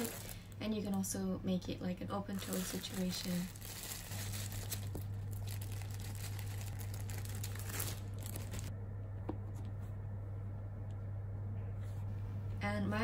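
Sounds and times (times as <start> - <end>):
plastic bag crinkling: 0.0 - 1.1, 2.1 - 8.7
steady low hum: 0.0 - 13.0.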